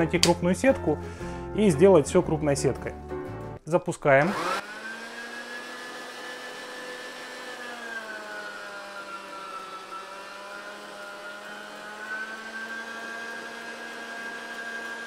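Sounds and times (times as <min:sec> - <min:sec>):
electric meat grinder whine: 0:04.2 - 0:15.0.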